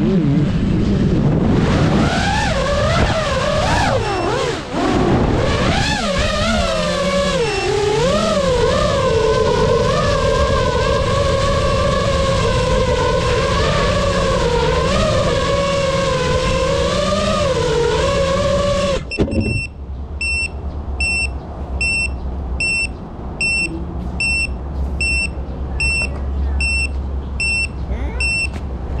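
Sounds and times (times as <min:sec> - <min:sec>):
drone motors whining: 0:00.0 - 0:29.0
high-pitched buzzer beeps: 0:07.4 - 0:07.8, 0:19.1 - 0:28.6.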